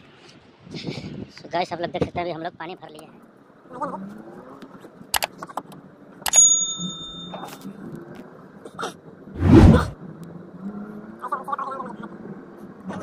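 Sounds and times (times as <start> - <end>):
low steady background hum: 0.0 - 13.0
bright bell ding: 6.3 - 7.6.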